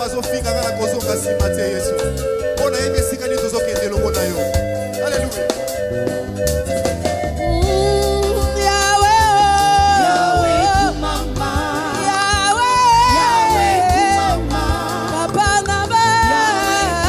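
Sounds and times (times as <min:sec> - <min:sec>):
band playing gospel music: 0:00.0 - 0:17.0
woman singing with vibrato: 0:07.4 - 0:17.0.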